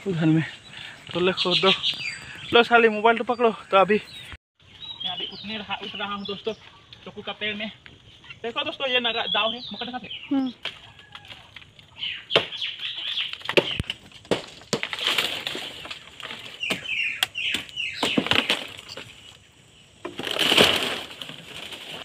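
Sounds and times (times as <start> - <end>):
dry palm fronds rustling: 10.6 - 22.0.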